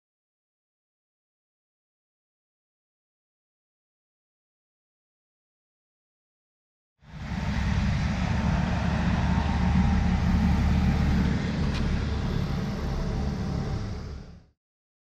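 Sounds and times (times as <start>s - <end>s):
road noise: 7.0s - 14.6s
vehicle engine rumbling: 7.0s - 14.6s.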